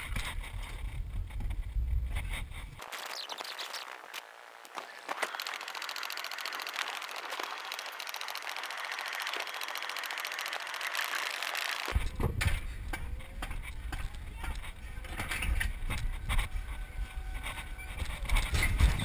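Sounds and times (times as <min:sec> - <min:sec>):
sled clicking rattle on rail: 0:05.2 - 0:12.0.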